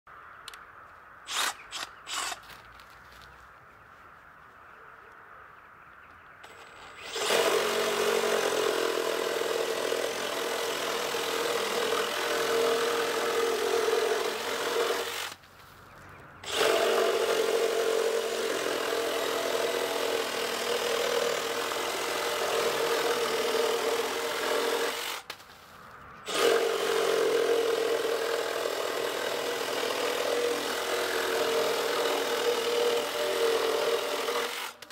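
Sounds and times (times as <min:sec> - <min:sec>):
reciprocating saw cutting wood: 0:01.3 - 0:02.4, 0:06.4 - 0:15.4, 0:16.4 - 0:25.4, 0:26.3 - 0:34.9.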